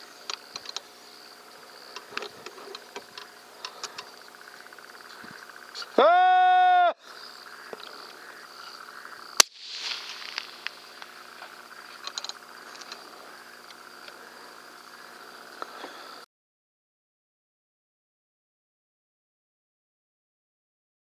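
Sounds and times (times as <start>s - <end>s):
crickets chirping: 0.0s - 16.3s.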